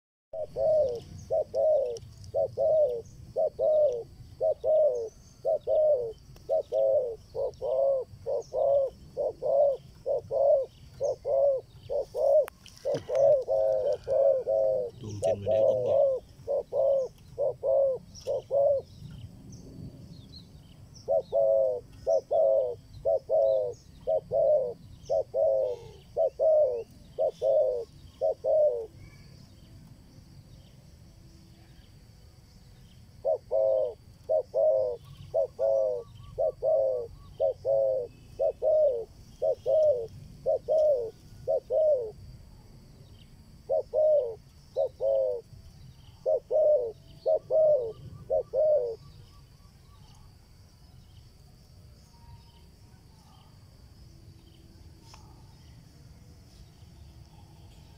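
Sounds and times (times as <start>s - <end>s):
dove cooing: 0.4s - 19.0s, 21.0s - 29.2s, 33.2s - 42.3s, 43.6s - 45.5s, 46.1s - 49.2s
small birds chirping: 0.4s - 57.9s.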